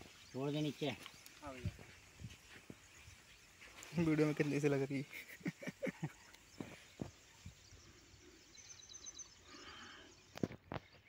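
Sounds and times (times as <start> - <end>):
bird twitter: 5.9 - 11.0.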